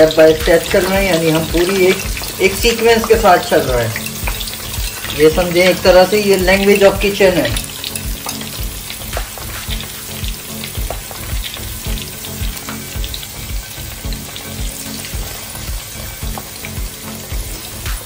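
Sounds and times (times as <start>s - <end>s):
fries sizzling in hot oil: 0.0s - 18.0s
spatula stirring fries: 0.0s - 18.0s.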